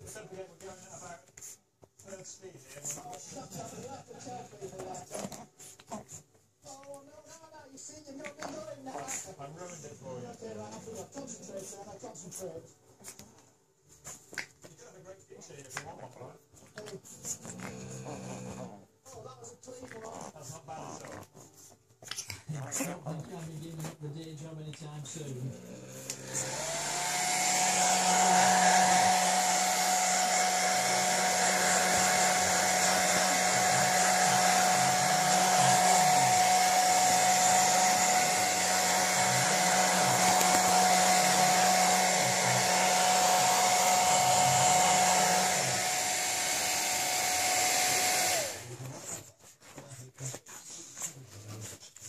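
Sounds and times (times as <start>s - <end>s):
hair dryer whining: 25.8s - 49.0s.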